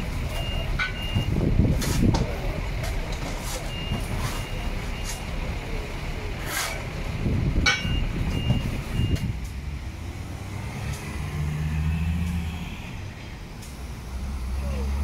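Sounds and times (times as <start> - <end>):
diesel truck rumbling: 0.0 - 15.0
reversing beeper beeps: 0.3 - 1.3, 3.7 - 5.2, 7.8 - 9.3
passing vehicle engine drone: 9.3 - 15.0.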